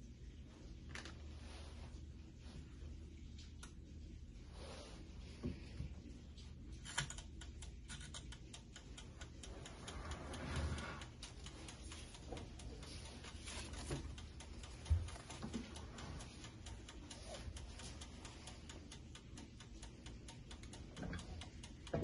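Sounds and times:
timer dial ticking: 6.3 - 22.0.

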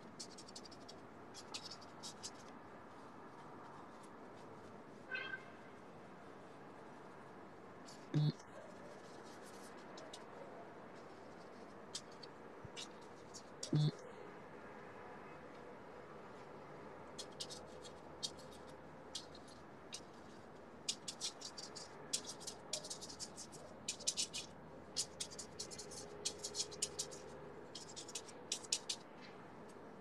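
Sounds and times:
paintbrush scratching on canvas: 0.0 - 5.2, 7.9 - 14.0, 17.1 - 29.1.

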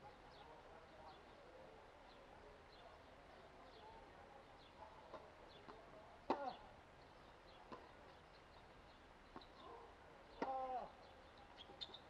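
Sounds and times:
faint bird chirps: 10.8 - 12.0.

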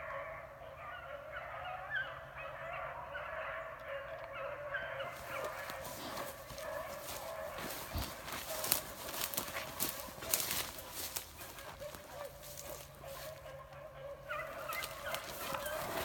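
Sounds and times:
hounds baying: 0.0 - 16.0
footfalls crackling in dry leaves: 5.1 - 13.4, 14.3 - 16.0.

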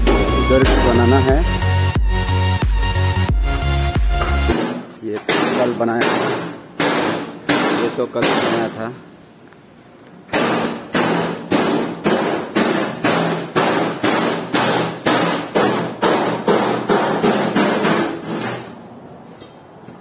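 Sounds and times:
hammer striking metal: 0.0 - 1.3, 4.2 - 8.8, 10.3 - 18.7.

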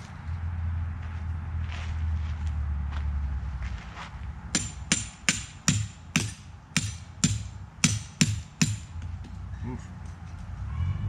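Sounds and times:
hammer striking tent stake: 4.5 - 9.4.

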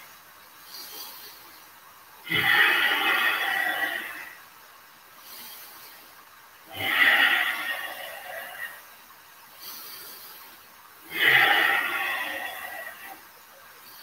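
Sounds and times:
man breathing effortfully: 5.2 - 6.3, 9.5 - 11.5.

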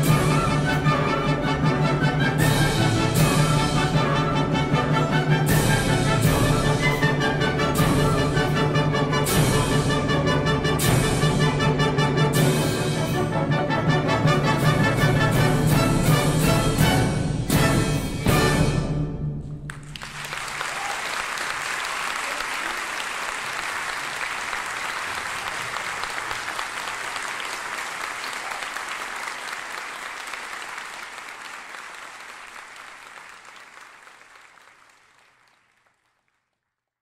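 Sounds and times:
audience applauding: 19.7 - 36.7.

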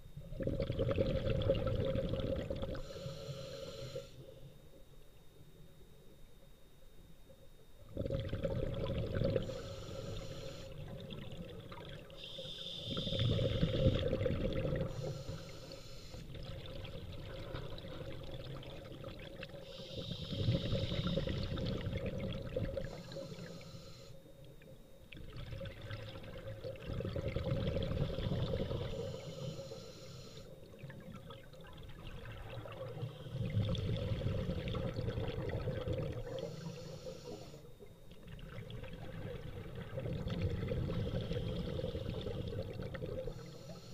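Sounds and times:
exhaled air bubbling: 0.0 - 4.0, 7.8 - 23.6, 24.5 - 29.6, 30.4 - 43.9
regulator hiss: 2.8 - 4.4, 9.4 - 10.8, 12.2 - 13.8, 14.9 - 16.3, 22.8 - 24.3, 28.8 - 30.6, 36.3 - 37.7, 43.3 - 43.9.

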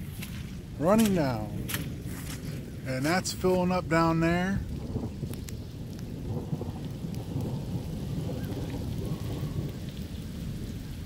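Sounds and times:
light rain falling: 0.0 - 11.0.

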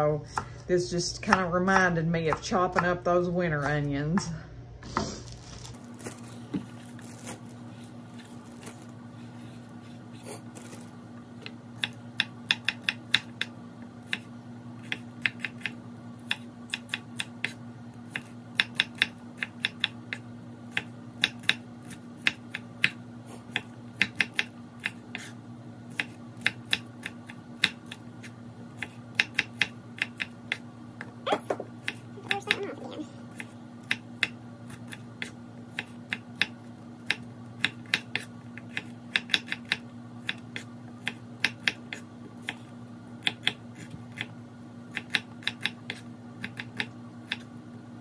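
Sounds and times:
low steady hum: 0.0 - 48.0
knife chopping on wooden board: 1.3 - 4.3, 11.4 - 25.3, 25.9 - 30.6, 33.3 - 44.3, 44.9 - 47.5.

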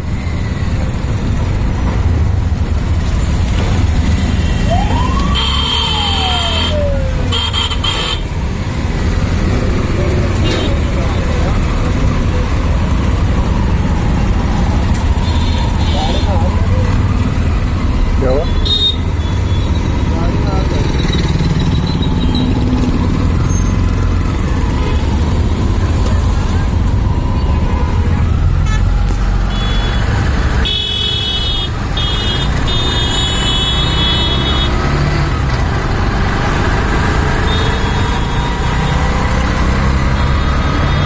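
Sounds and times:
auto rickshaw engine rumble: 0.0 - 41.0
road traffic: 0.0 - 41.0
vehicle horns honking: 5.3 - 8.3, 18.4 - 19.8, 28.6 - 34.8, 37.4 - 38.7.

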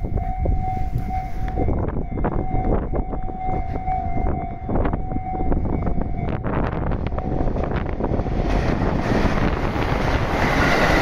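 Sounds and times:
level crossing warning bell: 0.0 - 8.5.

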